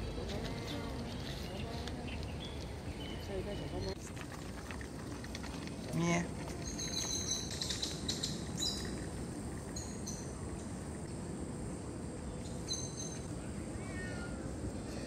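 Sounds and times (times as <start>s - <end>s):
small birds chirping: 0.0s - 4.1s
steady background hiss: 0.0s - 15.0s.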